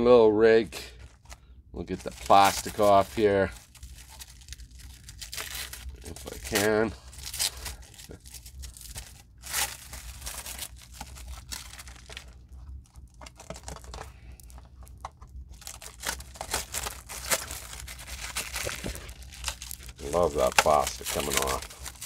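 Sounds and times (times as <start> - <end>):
plastic wrap crinkling and tearing: 1.0 - 22.0.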